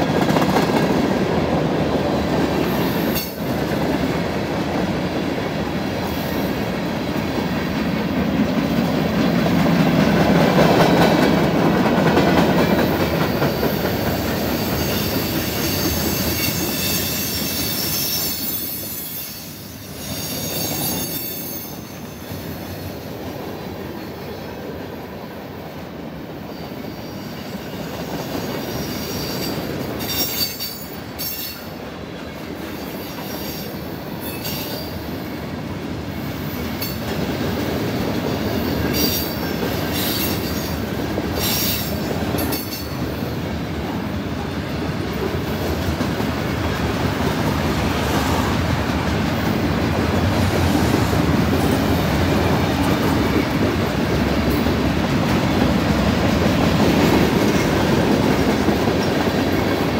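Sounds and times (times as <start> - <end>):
train wheels rumbling on rail: 0.0 - 59.9
high-pitched wheel squeal: 14.4 - 22.5.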